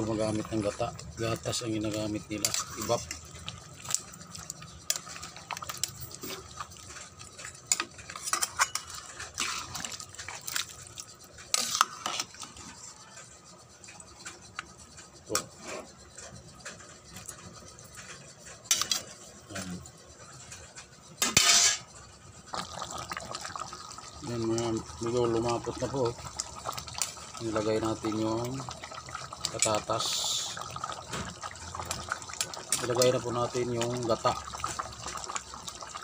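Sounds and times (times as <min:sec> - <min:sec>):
metal utensils clinking on pots: 0:00.0 - 0:13.2, 0:17.1 - 0:19.9, 0:21.1 - 0:22.0, 0:23.1 - 0:35.9
cookware clattering: 0:07.5 - 0:09.8, 0:21.2 - 0:21.9.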